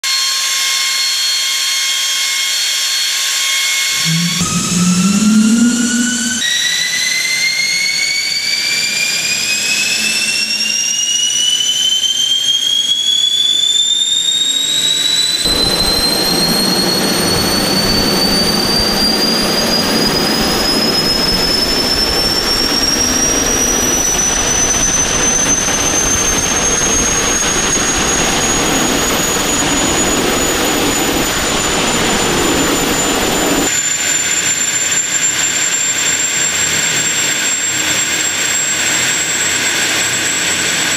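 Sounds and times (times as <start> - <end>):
jet engine whine rising: 0.1 - 40.9
jet engine rushing roar: 2.9 - 40.9
deep engine rumble: 4.0 - 6.4, 15.5 - 33.7.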